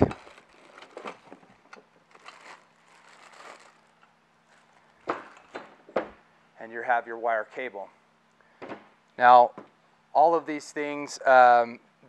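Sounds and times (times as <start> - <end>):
plastic packaging crinkling: 0.0 - 1.5, 2.1 - 5.0.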